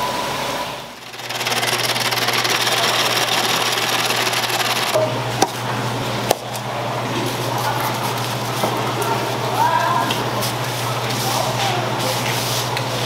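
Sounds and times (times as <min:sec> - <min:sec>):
electric ice shaver humming: 0:01.0 - 0:05.0
sharp clicks: 0:01.0 - 0:05.0.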